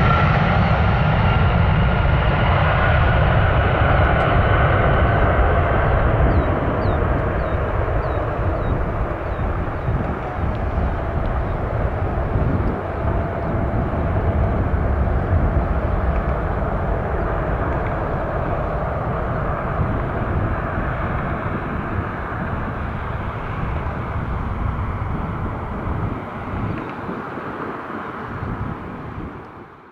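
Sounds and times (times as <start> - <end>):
jet engine rumble: 0.0 - 29.9.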